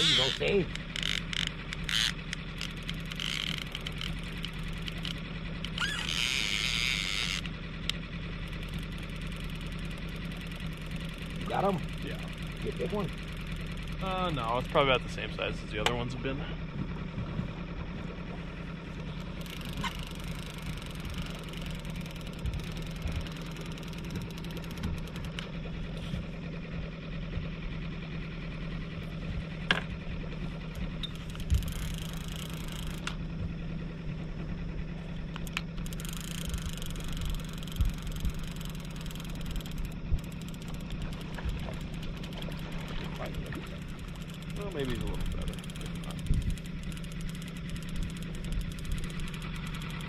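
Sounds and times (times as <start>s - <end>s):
fishing reel whirring: 0.0s - 15.6s, 18.6s - 26.1s, 29.0s - 33.2s, 35.1s - 50.0s
boat motor running: 0.0s - 50.0s.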